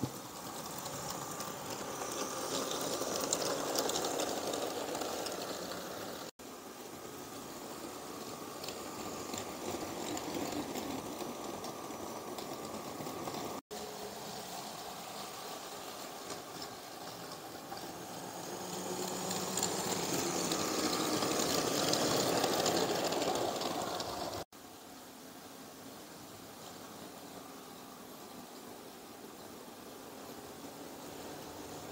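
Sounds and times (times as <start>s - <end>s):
toy train wheels clattering: 0.0s - 13.6s, 14.4s - 24.4s
toy train motor whirring: 0.0s - 24.5s.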